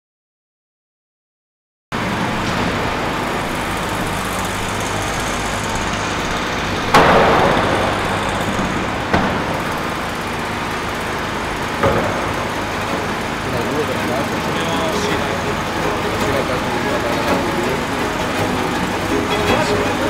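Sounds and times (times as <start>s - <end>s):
skateboard wheels rumbling on ramp: 2.0s - 20.0s
skateboard clack: 2.4s - 20.0s.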